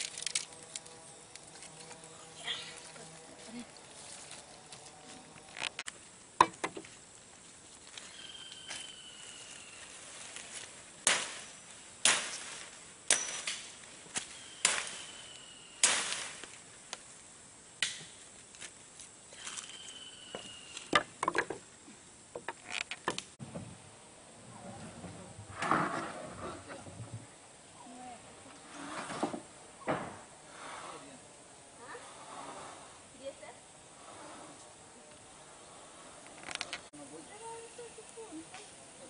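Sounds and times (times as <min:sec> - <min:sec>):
chopping blows cutting branches: 0:11.0 - 0:16.6, 0:17.8 - 0:18.7.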